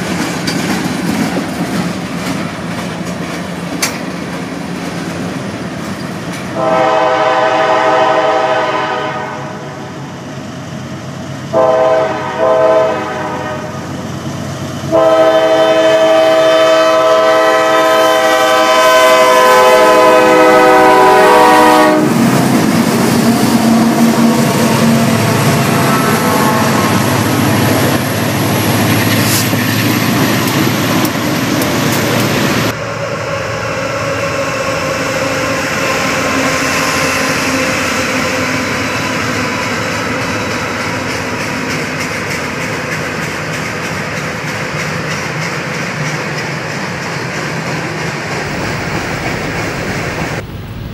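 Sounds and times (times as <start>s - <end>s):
diesel locomotive engines running: 0.0s - 50.9s
train rumbling over rails: 0.0s - 50.9s
locomotive air horn blasts: 6.5s - 10.0s, 11.5s - 13.8s, 14.9s - 22.3s, 24.8s - 27.3s.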